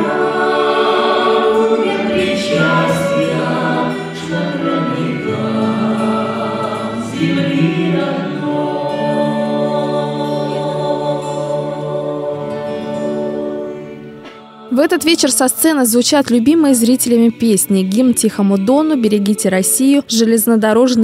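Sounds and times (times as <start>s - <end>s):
woman singing into a microphone: 0.0s - 5.3s
violin: 0.0s - 15.2s
acoustic guitar: 0.0s - 21.0s.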